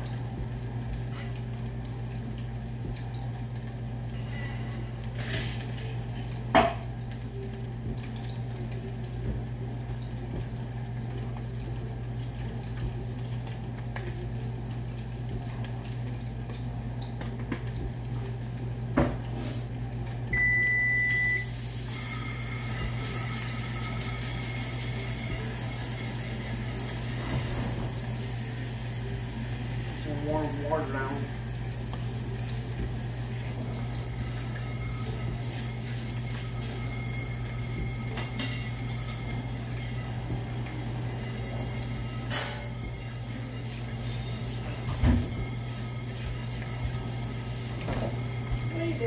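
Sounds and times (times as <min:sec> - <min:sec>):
electronic appliance beep: 0:20.3 - 0:25.2
tap running into sink: 0:44.8 - 0:45.6.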